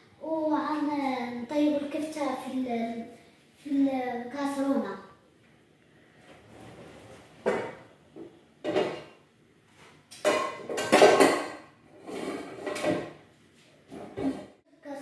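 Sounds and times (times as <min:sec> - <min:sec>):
metal pot clanking against pans: 0:10.2 - 0:11.7.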